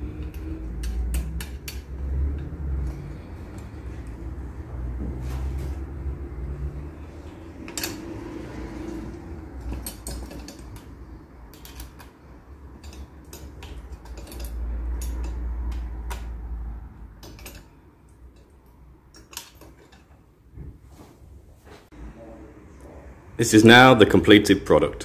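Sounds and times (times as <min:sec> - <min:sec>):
allen key clicking on hardware: 0:00.1 - 0:03.7, 0:09.6 - 0:16.4, 0:17.2 - 0:20.0.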